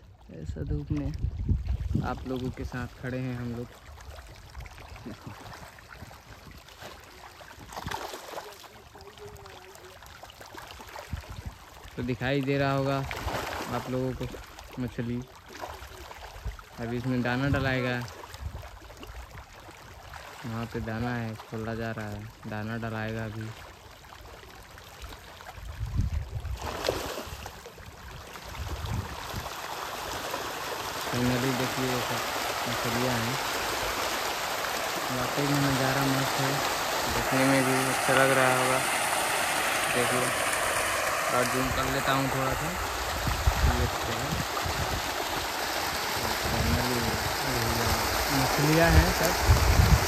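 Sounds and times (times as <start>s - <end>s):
water splashing and gurgling: 0.0s - 50.0s.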